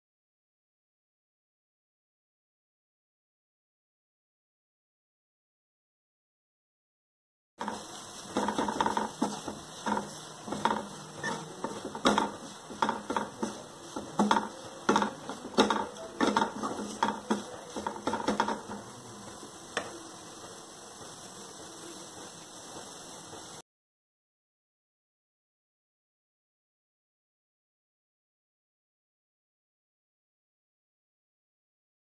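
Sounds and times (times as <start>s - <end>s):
wooden spatula scraping a pan: 7.6s - 23.6s.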